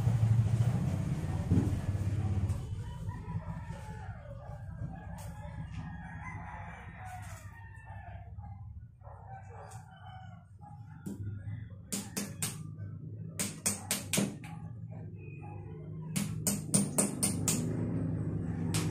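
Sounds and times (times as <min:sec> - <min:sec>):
rooster crowing: 0:02.8 - 0:12.2.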